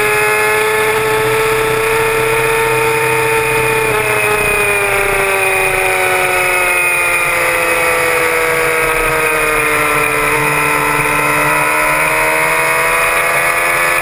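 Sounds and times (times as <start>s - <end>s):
motorcycle engine running hard: 0.0s - 14.0s.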